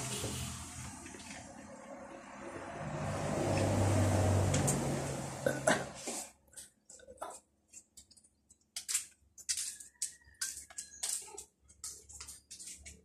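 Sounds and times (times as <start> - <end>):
person gulping from bottle: 5.4 - 6.3.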